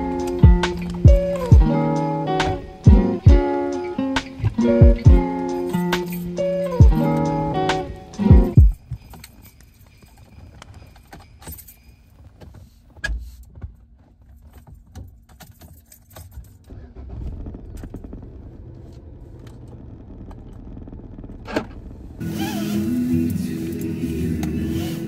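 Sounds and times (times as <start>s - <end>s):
car engine starting and idling: 0.0s - 9.0s, 15.8s - 25.0s
car keys jangling: 8.6s - 12.5s, 14.2s - 16.8s.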